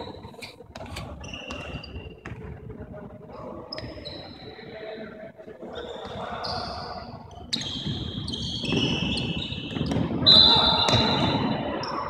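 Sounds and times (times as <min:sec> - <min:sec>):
shoes squeaking on court floor: 0:00.0 - 0:02.4, 0:03.7 - 0:04.5, 0:05.8 - 0:12.0
ball bouncing: 0:08.6 - 0:11.4.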